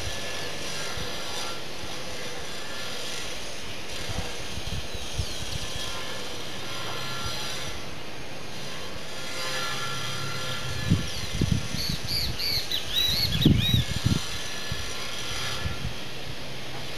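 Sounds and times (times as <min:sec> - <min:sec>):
steady outdoor hiss: 0:00.0 - 0:16.9
bird chirping: 0:10.9 - 0:14.0.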